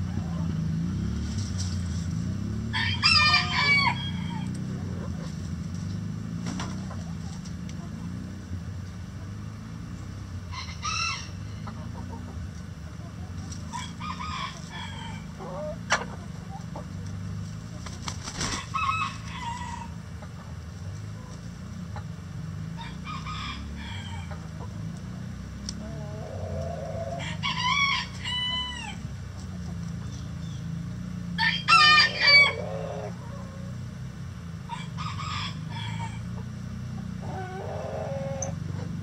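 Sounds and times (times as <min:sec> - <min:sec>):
rooster crowing: 0:02.7 - 0:04.5, 0:10.5 - 0:11.7, 0:13.7 - 0:15.4, 0:18.6 - 0:20.0, 0:22.8 - 0:24.4, 0:26.8 - 0:29.0, 0:31.4 - 0:33.2, 0:34.7 - 0:36.4
chickens clucking: 0:03.4 - 0:05.6, 0:06.4 - 0:08.3, 0:10.5 - 0:30.3, 0:32.1 - 0:33.8, 0:34.7 - 0:39.0.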